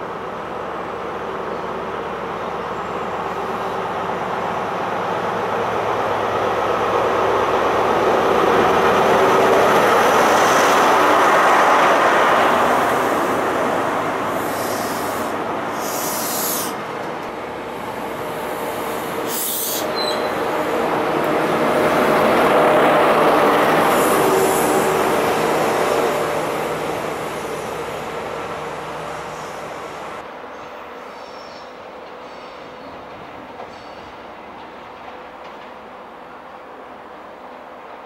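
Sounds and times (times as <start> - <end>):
diesel train passing: 0.0 - 38.0
short high hisses: 14.4 - 16.8, 19.2 - 20.2.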